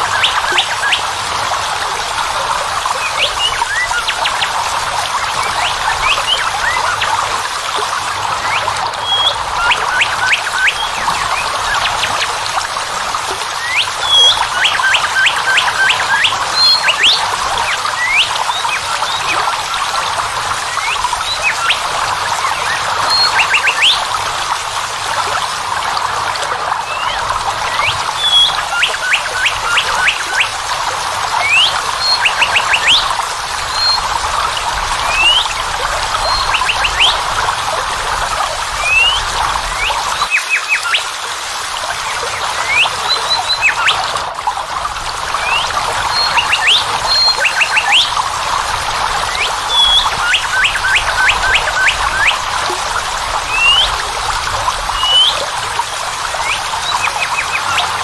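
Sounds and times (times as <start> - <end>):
waterfall rushing: 0.0 - 58.0
birds chirping: 8.4 - 12.2, 36.2 - 37.2, 42.3 - 44.0, 45.4 - 48.2, 49.2 - 52.4, 56.4 - 58.0.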